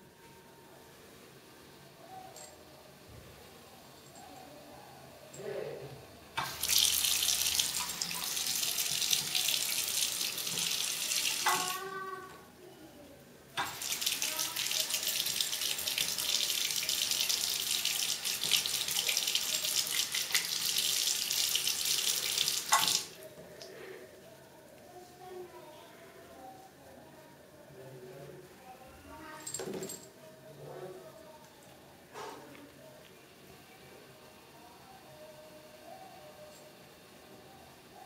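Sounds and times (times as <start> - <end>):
faucet running into basin: 6.4 - 11.8, 13.6 - 23.2.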